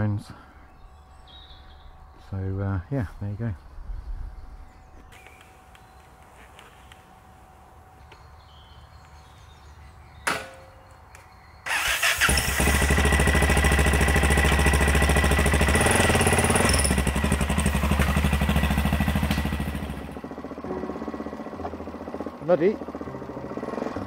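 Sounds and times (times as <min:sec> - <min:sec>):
motorcycle engine starting and running: 0:11.6 - 0:24.0
motorcycle pulling away: 0:11.7 - 0:24.0.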